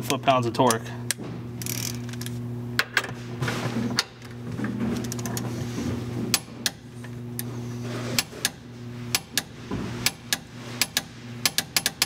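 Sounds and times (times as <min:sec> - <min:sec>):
steady low hum: 0:00.0 - 0:12.0
torque wrench ratchet clicking: 0:01.6 - 0:02.2, 0:10.3 - 0:12.0.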